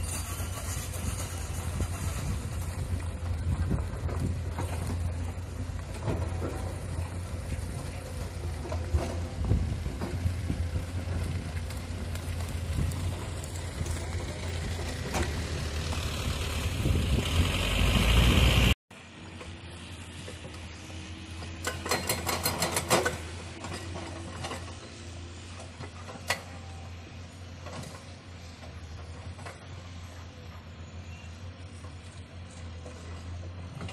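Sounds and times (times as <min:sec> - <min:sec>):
excavator diesel engine hum: 0:00.0 - 0:33.9
rattle of digging clicks: 0:21.6 - 0:26.5.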